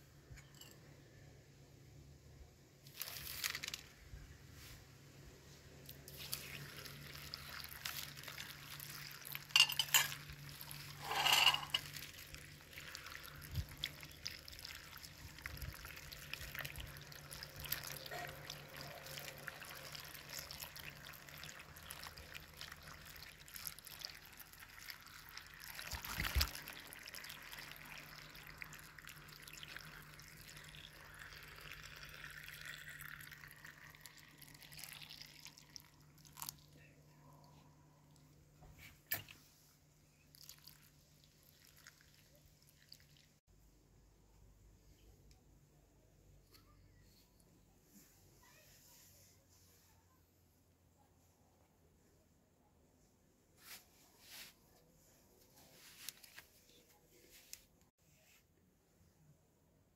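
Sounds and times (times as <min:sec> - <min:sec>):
water pouring into glass jar: 0:05.9 - 0:36.8, 0:40.3 - 0:43.4.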